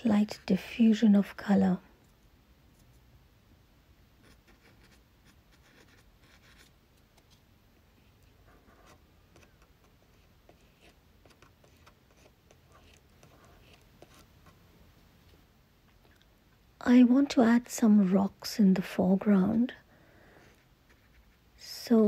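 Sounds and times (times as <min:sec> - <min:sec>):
faint soft scratching: 0:02.0 - 0:03.1, 0:04.2 - 0:14.7, 0:20.4 - 0:22.0.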